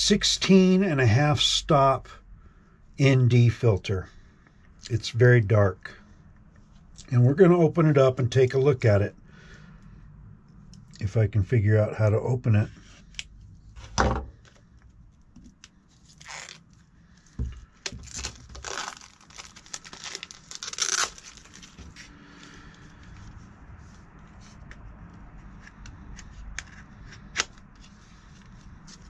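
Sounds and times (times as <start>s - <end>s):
plastic shrink-wrap tearing: 16.0s - 16.8s, 17.9s - 22.0s.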